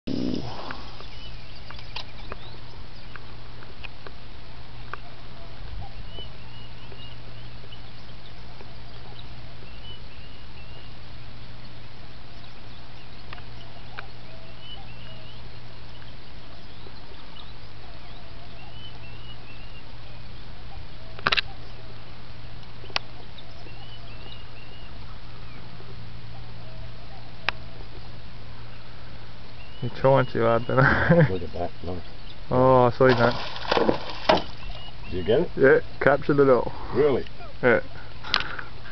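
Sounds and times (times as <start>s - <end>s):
small birds twittering: 0.1s - 38.9s
faint ticks: 38.2s - 38.7s.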